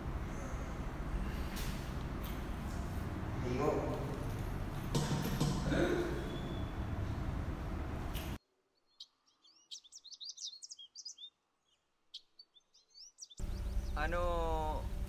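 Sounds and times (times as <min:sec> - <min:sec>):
room noise: 0:00.0 - 0:08.4
outdoor ambience: 0:00.0 - 0:15.0
small birds chirping: 0:08.7 - 0:15.0.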